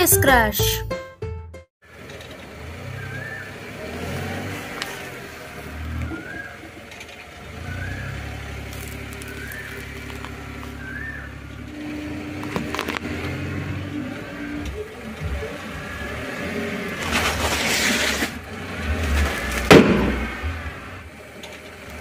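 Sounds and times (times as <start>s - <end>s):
car engine running low: 1.8s - 22.0s
marbles cracking under tyre: 8.6s - 10.8s.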